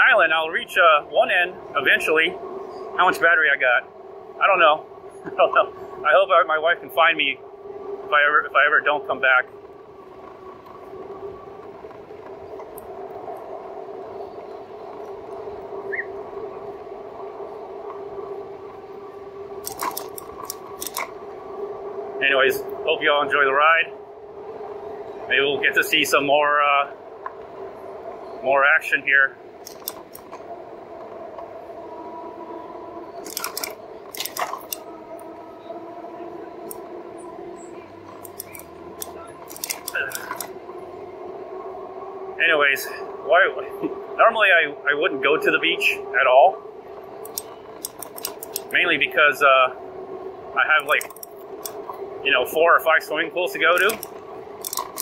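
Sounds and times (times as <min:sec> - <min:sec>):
steady rushing noise: 0:00.0 - 0:55.0
electric motor whining: 0:09.5 - 0:26.3, 0:29.3 - 0:55.0
bike metallic clicks and rattles: 0:19.6 - 0:21.1, 0:29.6 - 0:30.4, 0:33.2 - 0:34.8, 0:38.2 - 0:40.5, 0:47.2 - 0:48.8, 0:50.8 - 0:52.0, 0:53.7 - 0:55.0.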